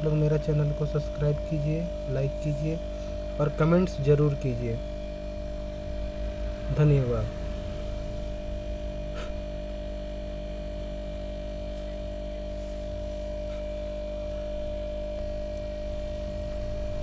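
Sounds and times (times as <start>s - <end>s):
steady multi-tone hum: 0.0s - 17.0s
low drone: 0.8s - 11.2s, 15.1s - 17.0s.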